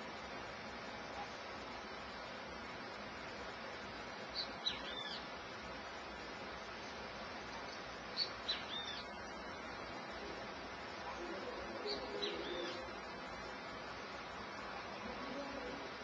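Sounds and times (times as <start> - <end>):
steady hiss: 0.0 - 16.0
bird calling: 4.3 - 5.3, 8.2 - 9.1, 11.0 - 13.0.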